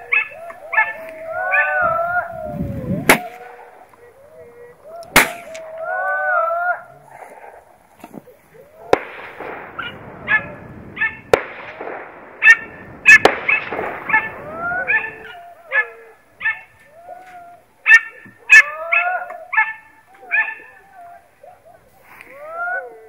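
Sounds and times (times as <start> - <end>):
hunting dog yelping: 0.0 - 9.1, 9.8 - 11.3, 12.4 - 23.0
sharp cracks: 3.0 - 4.0, 5.0 - 6.2, 8.8 - 14.6.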